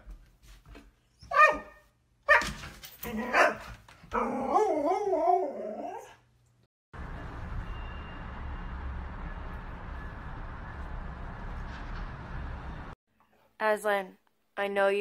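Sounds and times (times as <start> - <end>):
dog barking: 1.3 - 5.0
dog howling: 3.1 - 6.2.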